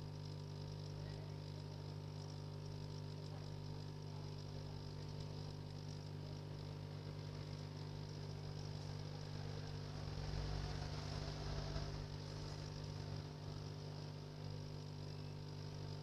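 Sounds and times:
hot air rework station blowing: 0:06.8 - 0:14.6.

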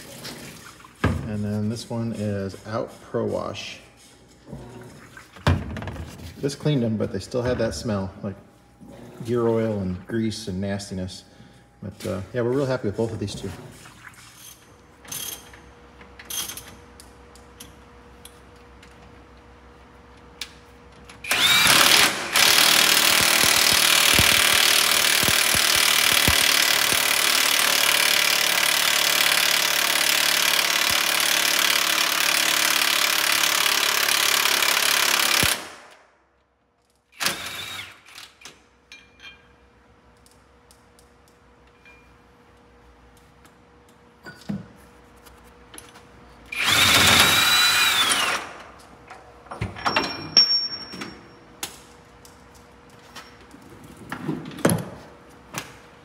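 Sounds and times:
impact wrench hammering: 0:21.3 - 0:35.9.

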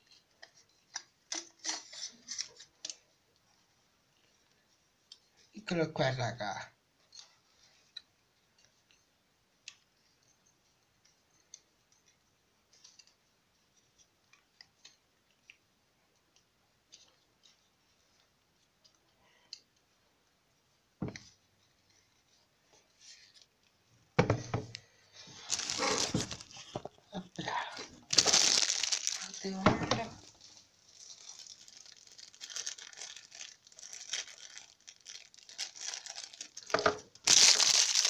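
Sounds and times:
knock: 0:24.2 - 0:24.7.

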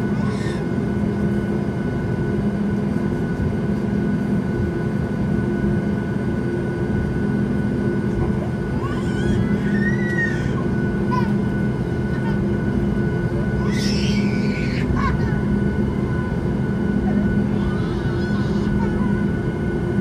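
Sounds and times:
jet cabin roar: 0:00.0 - 0:20.0
baby crying: 0:08.8 - 0:11.3, 0:13.6 - 0:15.4.

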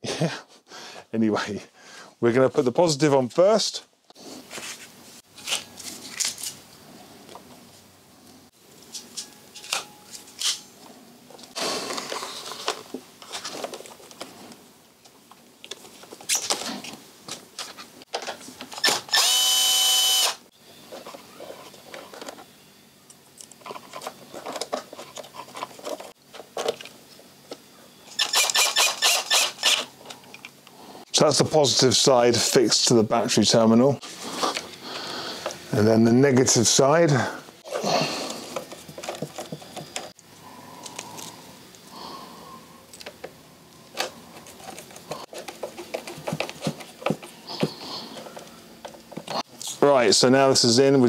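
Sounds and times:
clicks and rustles of parts: 0:04.5 - 0:06.6, 0:08.8 - 0:19.3, 0:20.9 - 0:30.8, 0:37.7 - 0:41.9, 0:42.9 - 0:49.8
electric screwdriver motor: 0:18.8 - 0:20.4, 0:28.1 - 0:29.9.

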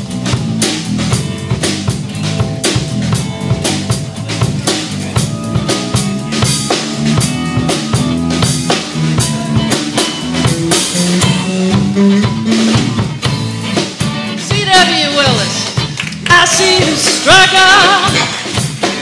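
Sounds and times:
drum kit beat: 0:00.0 - 0:19.0
electric bass: 0:00.0 - 0:19.0
keyboard: 0:00.0 - 0:19.0.

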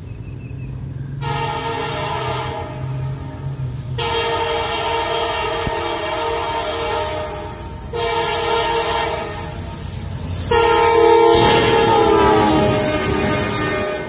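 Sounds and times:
locomotive air horn blasts: 0:01.2 - 0:03.4, 0:04.0 - 0:09.6, 0:10.4 - 0:14.0.

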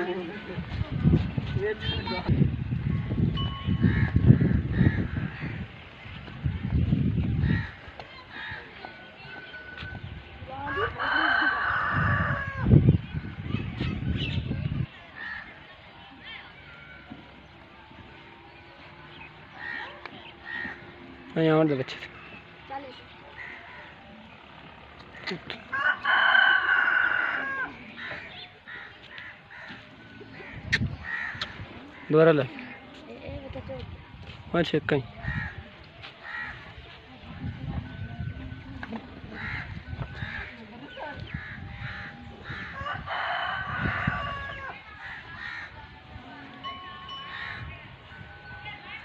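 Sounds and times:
rooster crowing: 0:10.7 - 0:12.7, 0:25.7 - 0:27.8, 0:42.7 - 0:44.8.

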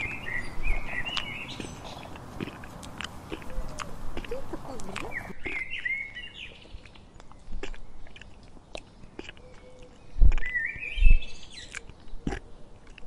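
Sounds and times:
small bird twittering: 0:00.0 - 0:07.0
giraffe chewing: 0:00.0 - 0:13.0
short wet clicks: 0:00.7 - 0:05.6.

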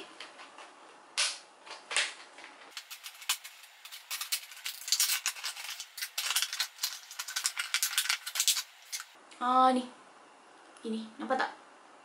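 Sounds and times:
plastic packaging crinkling: 0:02.7 - 0:09.2.

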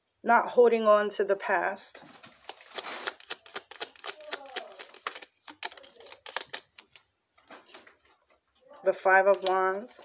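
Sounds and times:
cards being shuffled: 0:02.4 - 0:07.1, 0:09.3 - 0:09.6.

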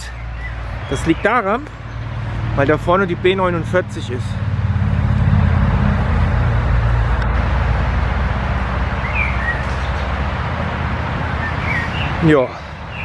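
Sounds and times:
bird chirping: 0:00.0 - 0:02.8, 0:09.0 - 0:10.4, 0:11.2 - 0:13.0
loud traffic noise: 0:00.0 - 0:13.0.

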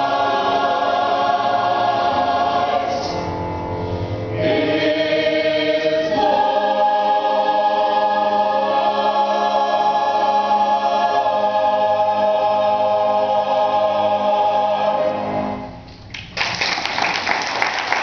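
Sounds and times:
choir holding a chord: 0:00.0 - 0:15.8
audience applause: 0:16.1 - 0:18.0.

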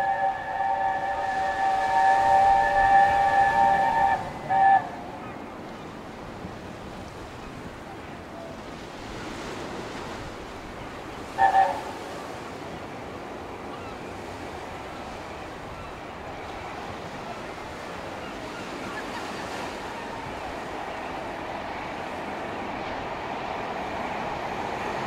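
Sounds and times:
steam locomotive chime whistle: 0:00.0 - 0:05.4, 0:11.2 - 0:12.4
wind and surf rushing: 0:00.0 - 0:25.0.

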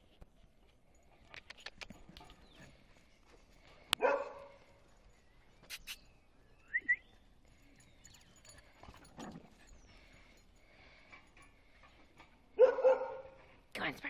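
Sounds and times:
dog barking: 0:04.0 - 0:04.6, 0:12.6 - 0:13.4.

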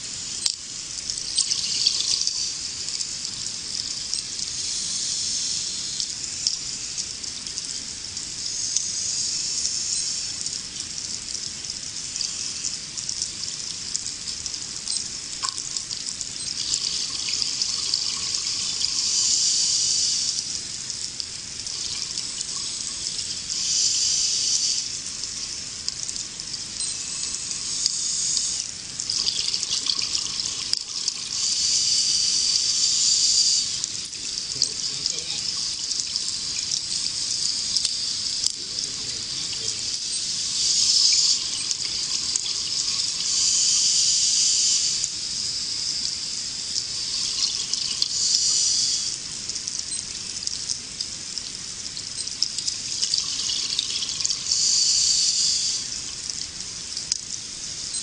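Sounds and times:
steady watery wash: 0:33.6 - 0:40.8.

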